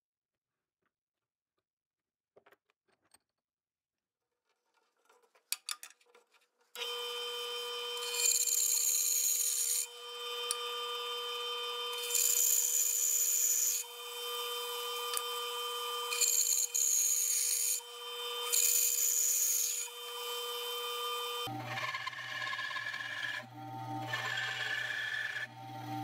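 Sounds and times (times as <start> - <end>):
bandsaw blade cutting wood: 6.8 - 26.0
bandsaw humming: 6.8 - 26.0.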